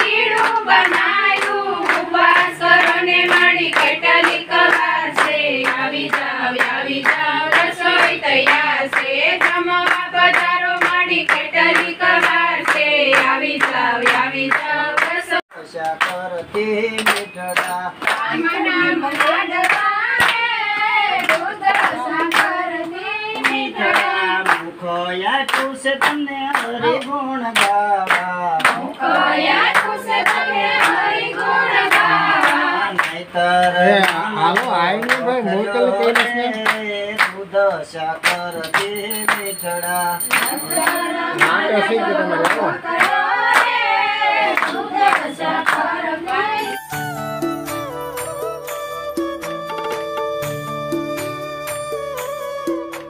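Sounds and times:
women and children singing: 0.0 - 15.4, 18.0 - 24.7, 28.9 - 33.0, 40.6 - 46.8
rhythmic hand clapping: 0.0 - 47.0.

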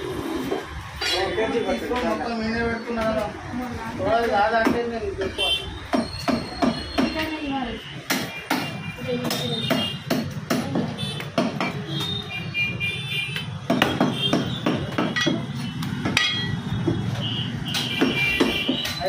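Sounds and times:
cleaver chopping meat on wood: 8.0 - 11.9, 13.4 - 16.2, 17.7 - 19.0.

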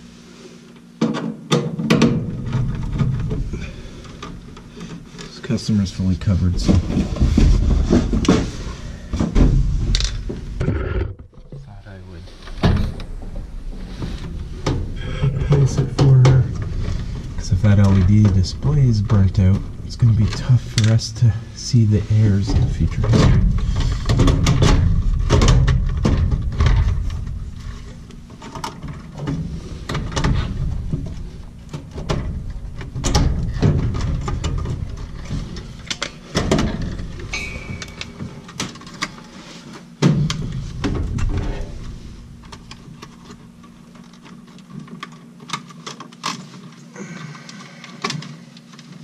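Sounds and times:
connectors clicking and knocking: 12.4 - 46.9.

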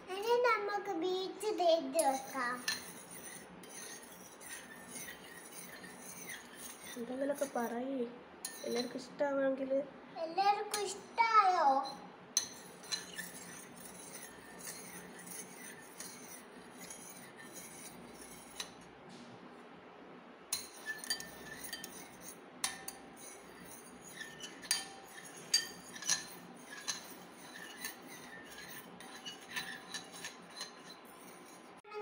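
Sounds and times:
spoon clinking in glass bowl: 12.4 - 17.1, 20.6 - 31.5.

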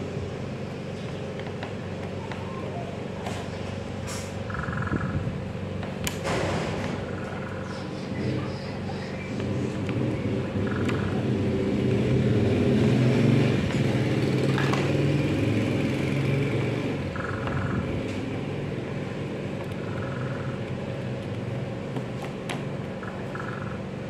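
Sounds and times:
low mechanical rumble: 0.0 - 12.4.

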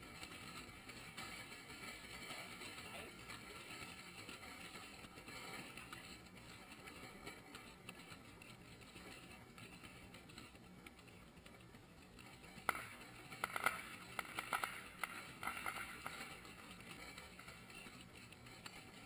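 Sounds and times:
firework crackling pops: 12.5 - 17.5.

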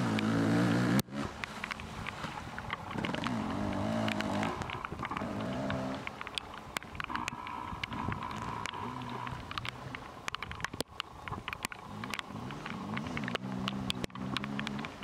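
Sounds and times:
dirt bike engine revving: 0.0 - 6.1, 11.9 - 15.0
sharp ticks: 0.0 - 15.0.

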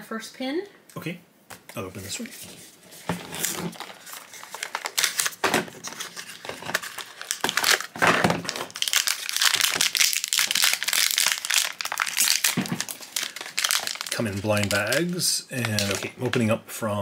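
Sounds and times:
foil bag crinkling: 2.0 - 16.3
cardboard box opening: 2.4 - 8.6.

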